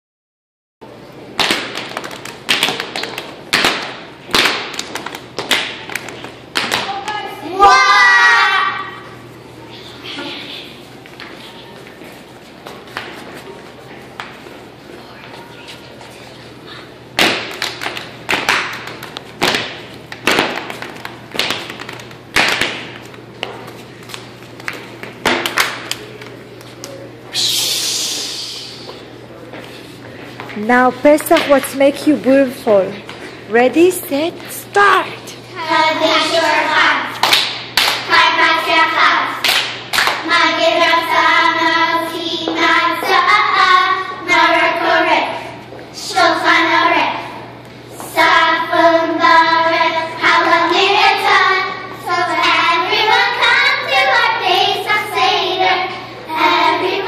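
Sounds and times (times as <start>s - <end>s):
children stamping on tile floor: 17.2s - 25.8s.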